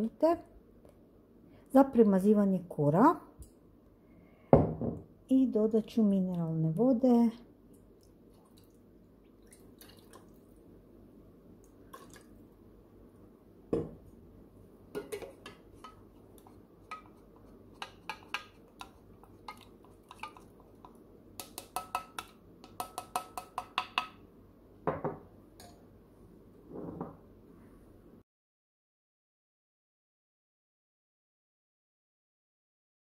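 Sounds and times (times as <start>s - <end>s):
spoon clinking in metal jug: 21.4s - 24.1s.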